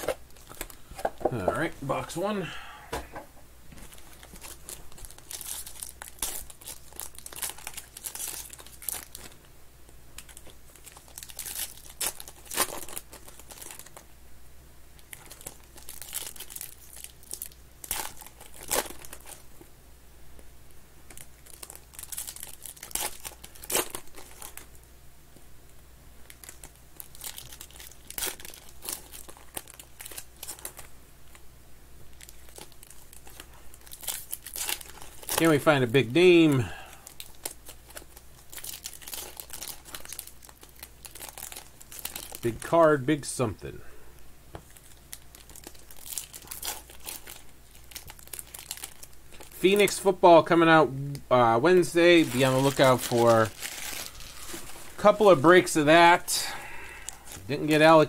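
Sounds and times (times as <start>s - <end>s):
foil wrappers crinkling and tearing: 0.0s - 2.6s, 3.7s - 9.5s, 10.2s - 14.0s, 15.0s - 19.6s, 21.1s - 24.8s, 26.2s - 31.4s, 32.1s - 43.0s, 44.6s - 50.7s, 51.6s - 58.0s.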